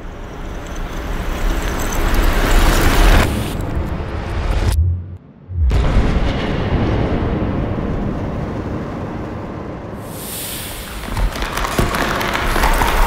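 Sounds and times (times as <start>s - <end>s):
high hiss: 10.0s - 11.2s.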